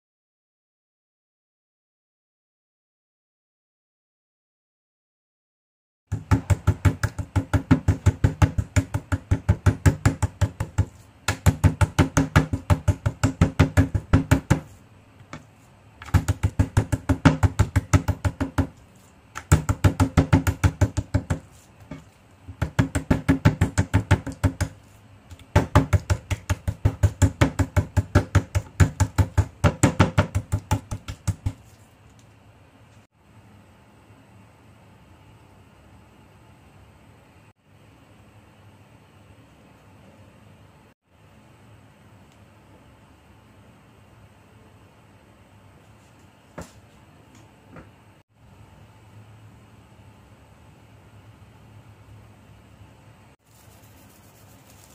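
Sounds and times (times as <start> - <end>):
meat mallet pounding on wooden board: 6.1 - 14.7, 16.0 - 18.8, 19.4 - 21.5, 22.5 - 24.8, 25.4 - 31.6.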